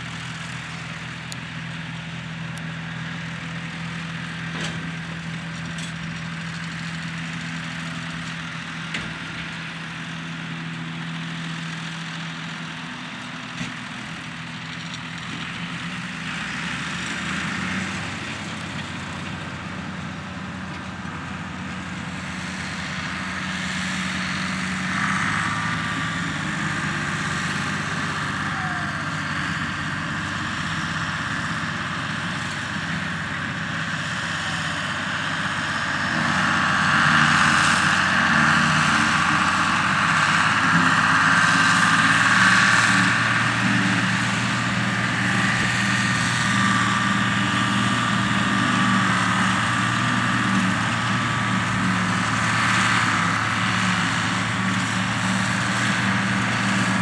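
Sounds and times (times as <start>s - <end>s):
diesel tractor engines under load: 0.0s - 57.0s
tractor passing close: 0.0s - 57.0s
forage harvester chopping grass: 29.7s - 57.0s.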